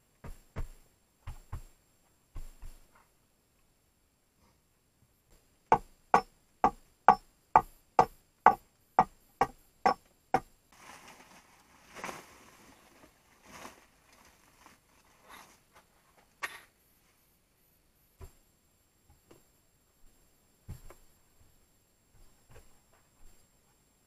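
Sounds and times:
hammer nailing into wood: 5.7 - 10.5
soft rustling: 10.7 - 17.5.

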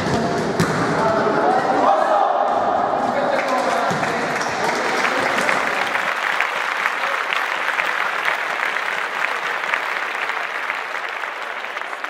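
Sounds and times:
applause: 3.3 - 12.0.

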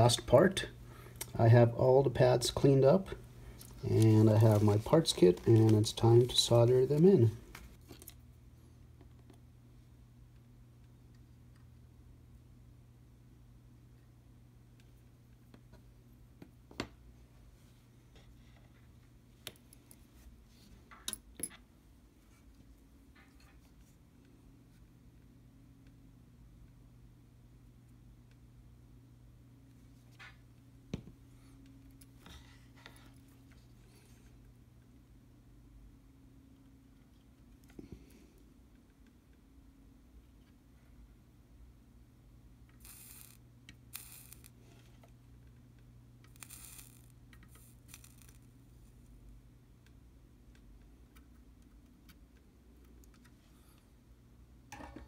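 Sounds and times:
faint low hum: 0.0 - 55.0
solder flux sizzling: 2.1 - 7.8, 42.8 - 45.0, 46.2 - 49.2.

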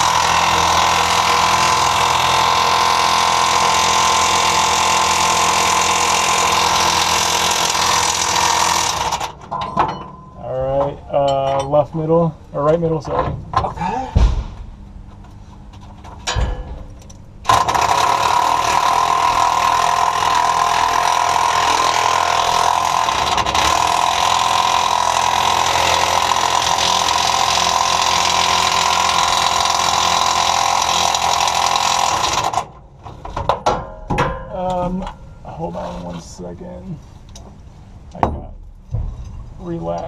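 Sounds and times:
impact wrench hammering: 16.3 - 32.6.

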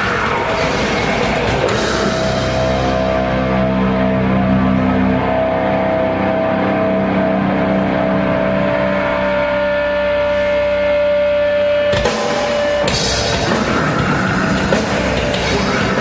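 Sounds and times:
drums crashing in: 0.0 - 3.2, 11.9 - 16.0
rock band playing: 0.0 - 16.0.

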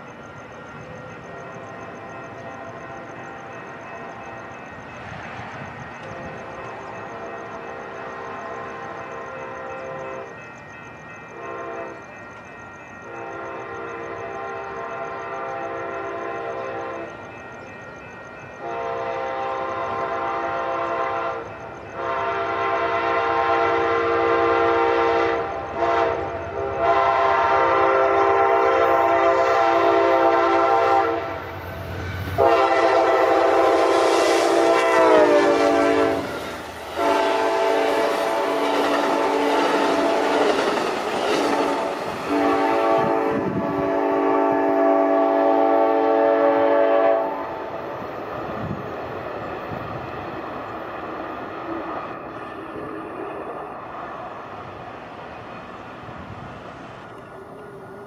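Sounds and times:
train air horn blasts: 11.3 - 12.0, 13.1 - 17.1, 18.6 - 31.5, 32.2 - 40.7, 41.3 - 47.7.

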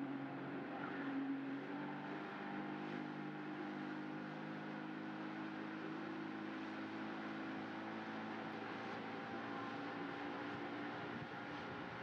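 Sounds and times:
motorboat engine droning: 2.5 - 12.0.

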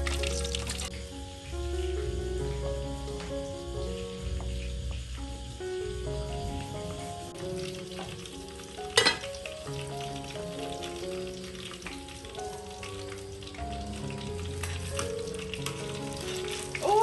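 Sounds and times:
fish frying in hot oil: 0.0 - 2.7, 5.0 - 17.0
soft background music: 0.0 - 17.0
metal pot lid clank: 9.0 - 9.2.

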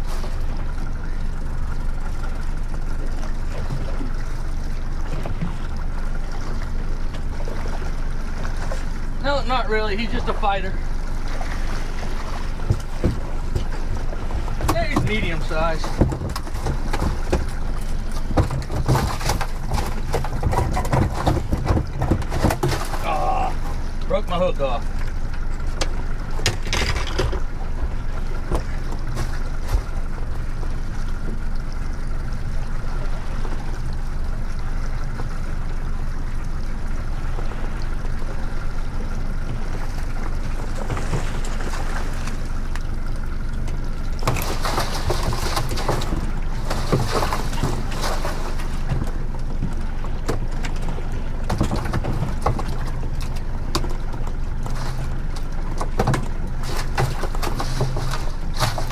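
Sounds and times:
outboard motor humming: 0.0 - 58.9.

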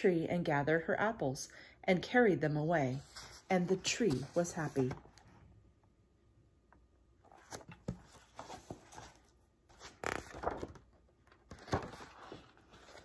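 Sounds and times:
book pages turning: 3.0 - 5.2, 7.2 - 13.0.

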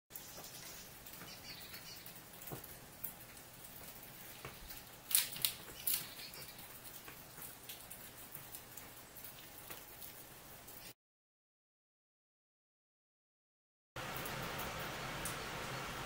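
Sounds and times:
squirrel cracking seed: 4.7 - 6.5.

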